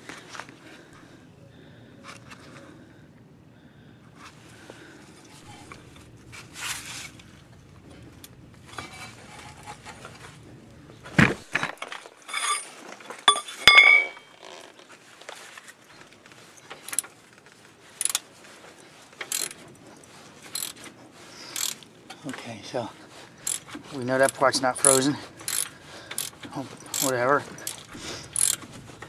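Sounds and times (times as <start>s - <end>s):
ringing metallic clinks: 13.3s - 14.4s
socket wrench clicks: 28.4s - 28.6s.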